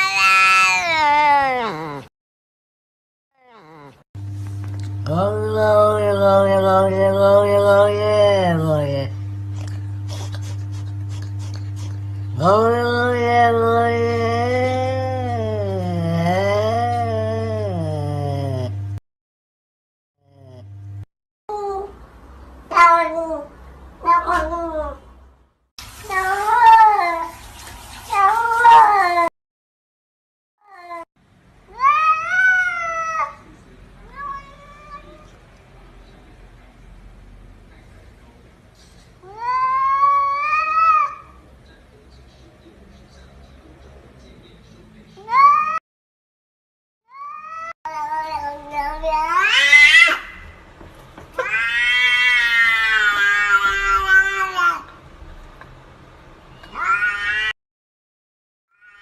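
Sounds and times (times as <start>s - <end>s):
cats meowing: 0.0s - 2.1s, 22.7s - 25.0s, 31.7s - 33.4s, 34.0s - 35.4s, 39.2s - 41.3s, 47.1s - 50.5s, 51.4s - 54.9s, 56.6s - 57.6s, 58.7s - 59.0s.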